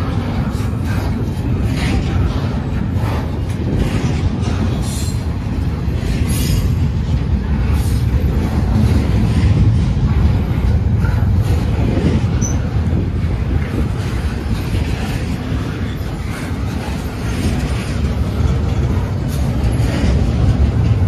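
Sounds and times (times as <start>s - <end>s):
train wheels rumbling on rail: 0.0s - 21.0s
wheel squeals: 12.3s - 12.8s.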